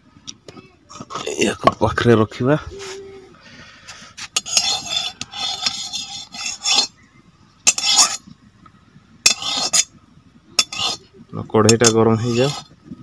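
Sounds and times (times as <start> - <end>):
metal spatula scraping a wok: 4.2 - 7.0, 7.6 - 8.2, 9.2 - 10.0, 10.6 - 12.8.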